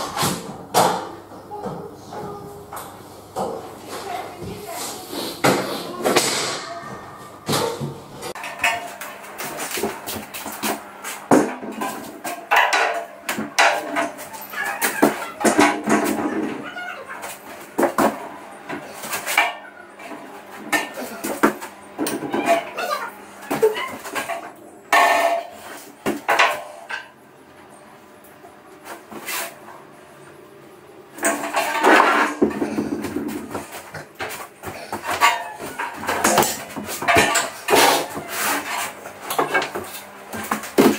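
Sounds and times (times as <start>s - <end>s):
metal radiator clanking and scraping: 7.5s - 16.6s, 23.6s - 27.1s, 31.2s - 40.9s
metal radiator clanking: 23.6s - 25.7s, 31.2s - 33.8s, 35.0s - 39.8s.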